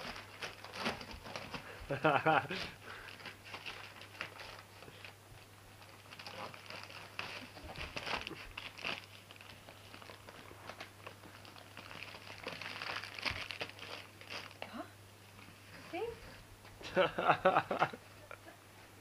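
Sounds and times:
wrapping paper crinkling: 0.0s - 14.8s.

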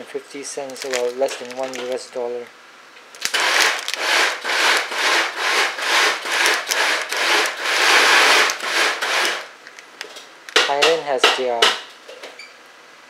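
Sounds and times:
plastic packet crinkling: 0.5s - 2.5s, 3.1s - 10.1s.

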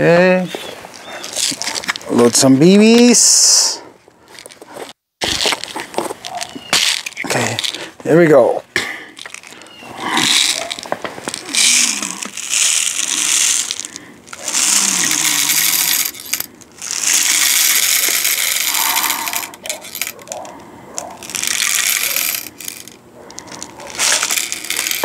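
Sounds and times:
metal pellets rattling: 6.8s - 7.8s, 9.2s - 9.6s, 10.2s - 20.5s, 21.2s - 25.0s.

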